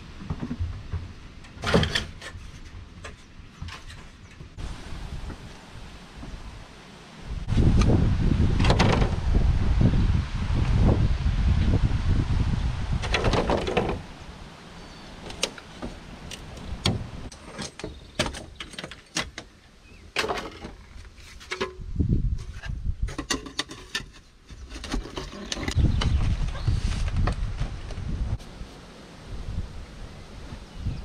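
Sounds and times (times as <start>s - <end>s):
knocks and clicks of building work: 0.0s - 4.6s, 8.6s - 9.2s, 13.0s - 14.0s, 15.2s - 26.3s
wind rumble on microphone: 0.0s - 17.3s, 20.9s - 23.3s, 24.5s - 31.0s.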